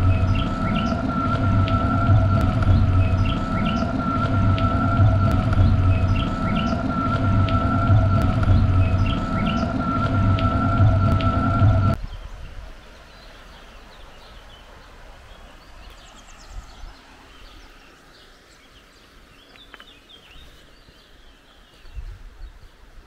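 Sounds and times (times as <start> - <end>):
low rumble: 0.0 - 12.2
small birds chirping: 0.0 - 22.9.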